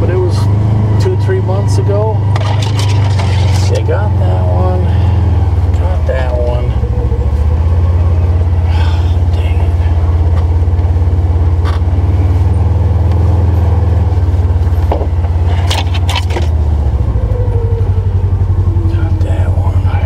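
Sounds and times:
vehicle engine droning: 0:00.0 - 0:20.0
cab knocking and rattling: 0:14.5 - 0:16.6.

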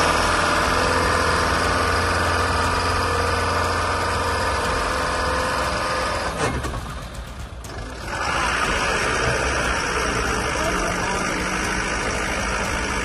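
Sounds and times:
vehicle engine humming: 0:00.0 - 0:13.0.

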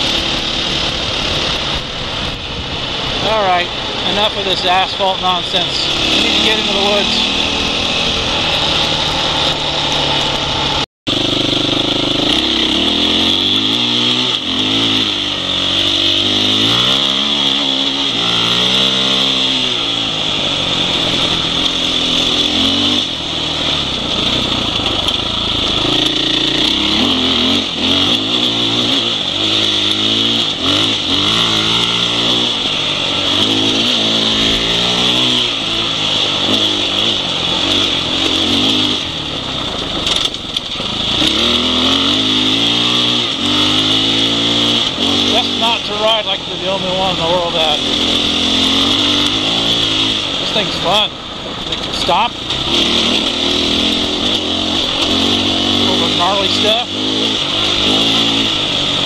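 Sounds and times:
motorcycle engine revving: 0:00.0 - 0:59.0
wind and road noise hiss: 0:00.0 - 0:59.0.

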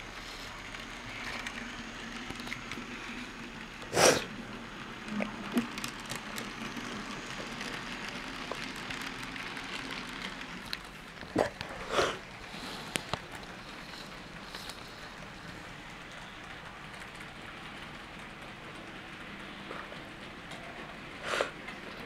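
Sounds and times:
wheels ticking: 0:05.0 - 0:22.0.

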